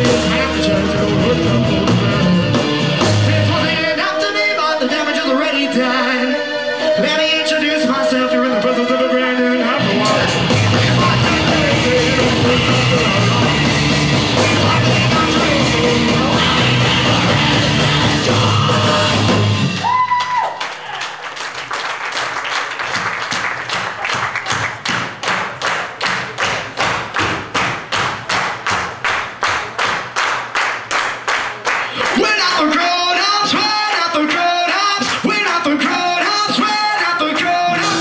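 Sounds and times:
live rock band with singing: 0.0 - 20.0, 32.0 - 38.0.

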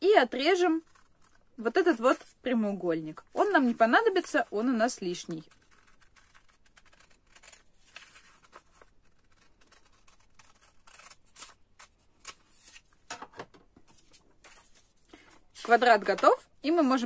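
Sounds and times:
scissors cutting paper: 3.4 - 12.8.

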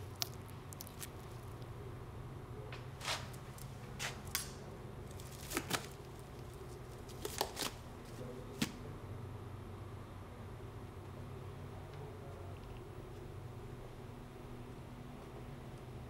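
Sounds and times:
steady low hum: 0.0 - 16.0
plastic wrappers rustling: 5.0 - 8.7.

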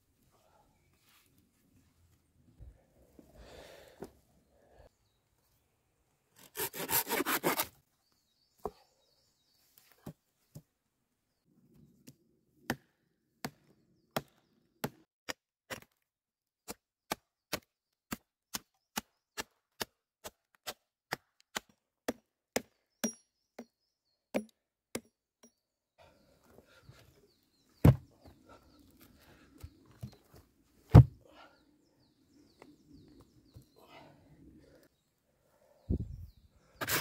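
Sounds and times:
hatchet chopping wood: 12.7 - 16.0, 16.6 - 23.7, 24.3 - 25.6, 30.9 - 31.1
stake thudding into soil: 30.9 - 31.2.

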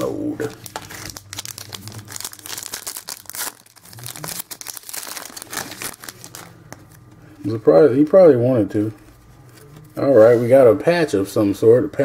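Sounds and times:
wrapper crinkling and tearing: 0.0 - 7.1.

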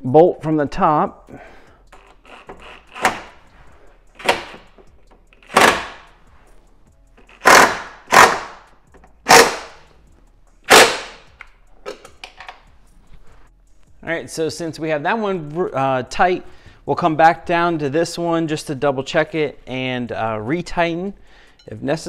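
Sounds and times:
impact wrench bursts: 5.4 - 6.1, 7.3 - 9.8, 10.7 - 11.3.

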